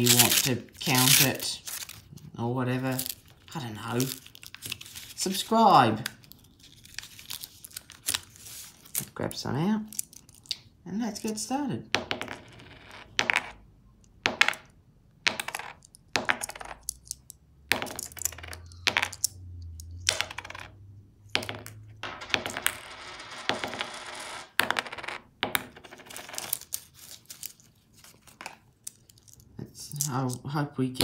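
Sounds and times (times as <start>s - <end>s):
paper wrapper rustling: 0.0s - 2.2s, 2.9s - 5.4s, 6.2s - 9.1s, 26.4s - 28.4s
coins set down on table: 15.3s - 19.3s, 20.1s - 20.7s, 21.4s - 26.8s
coins clinking: 22.0s - 25.2s, 25.8s - 27.2s.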